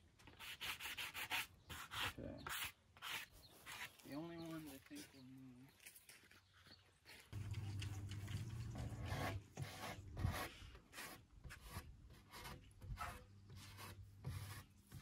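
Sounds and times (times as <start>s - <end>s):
sanding wood: 8.8s - 15.0s.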